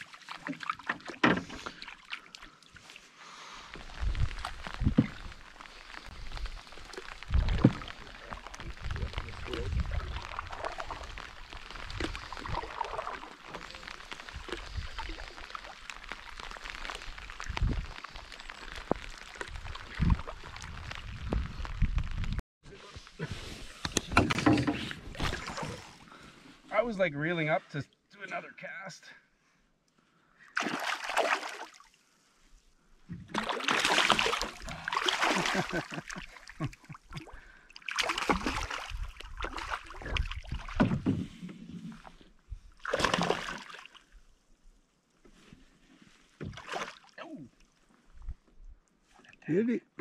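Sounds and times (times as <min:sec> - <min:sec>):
fish splashing in water: 0:30.6 - 0:31.9, 0:33.3 - 0:36.4, 0:37.1 - 0:40.9, 0:42.8 - 0:44.0.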